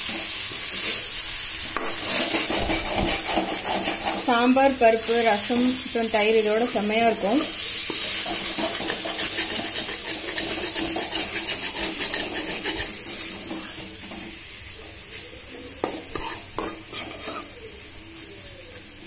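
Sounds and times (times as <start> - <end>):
spatula scraping a pan: 0.0 - 5.4, 6.5 - 17.8
chicken sizzling in a pan: 0.0 - 19.0
spatula clanking against pan: 7.9 - 13.8, 15.8 - 17.5.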